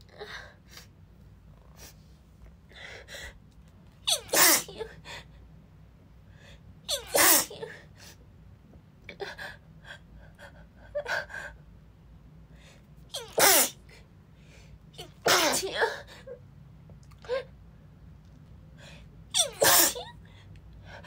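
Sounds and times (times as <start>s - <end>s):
woman sneezing: 4.1s - 4.9s, 6.9s - 7.8s, 13.1s - 13.8s, 15.0s - 16.1s, 19.4s - 20.1s.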